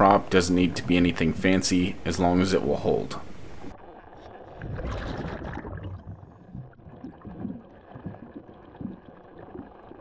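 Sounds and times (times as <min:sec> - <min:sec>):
underwater gurgling: 0:02.6 - 0:10.0
regulator bubbles rushing: 0:03.5 - 0:10.0.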